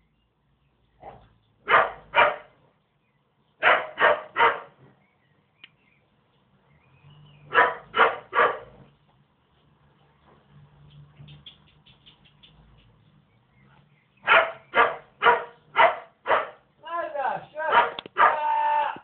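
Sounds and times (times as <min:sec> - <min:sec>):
puppy barking: 0:01.0 - 0:02.6, 0:03.6 - 0:04.8, 0:07.5 - 0:08.8, 0:14.2 - 0:16.6, 0:17.7 - 0:18.4.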